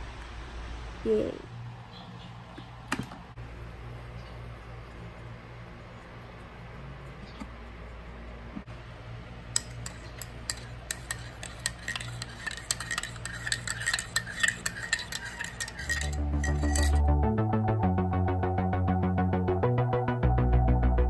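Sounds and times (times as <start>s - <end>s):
spoon clinking in ceramic mug: 9.6s - 17.0s.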